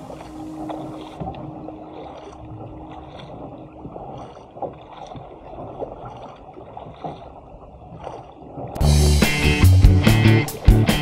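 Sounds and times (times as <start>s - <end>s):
paddle blades dipping into water: 0.0s - 11.0s
water rushing along a hull: 0.0s - 11.0s.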